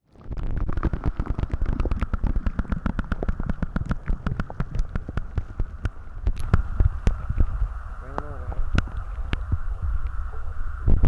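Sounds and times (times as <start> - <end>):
muffled underwater rumble: 0.0 - 11.0
water sloshing clicks and crackles: 0.0 - 11.0.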